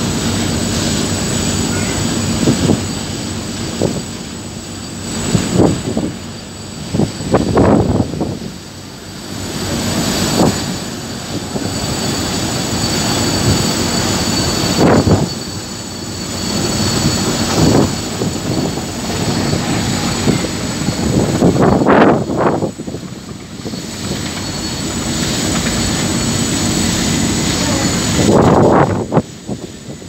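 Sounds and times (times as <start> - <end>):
boat engines rumbling: 0.0 - 30.0
wind buffeting microphone: 5.2 - 8.8, 9.6 - 15.4, 16.6 - 30.0.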